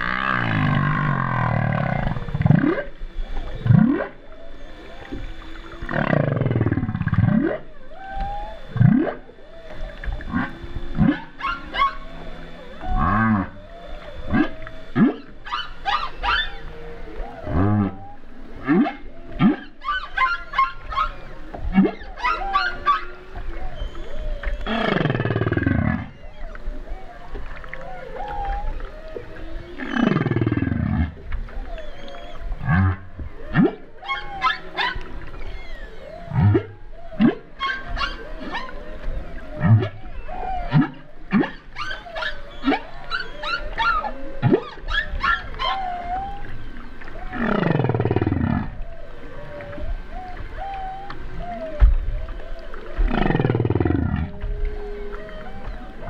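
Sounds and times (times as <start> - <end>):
humpback whale calls underwater: 0.0 - 56.0.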